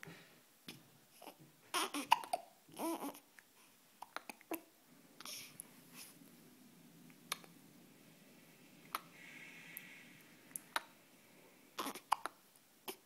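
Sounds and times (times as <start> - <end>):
baby hiccuping: 1.2 - 3.2, 4.0 - 4.6, 11.8 - 13.0.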